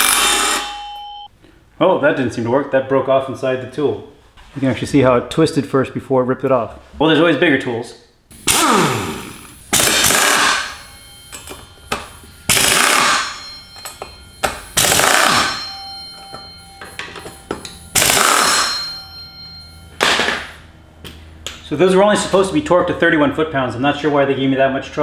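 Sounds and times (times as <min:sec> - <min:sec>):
air impact wrench hammering: 0:00.0 - 0:01.0, 0:08.3 - 0:20.6.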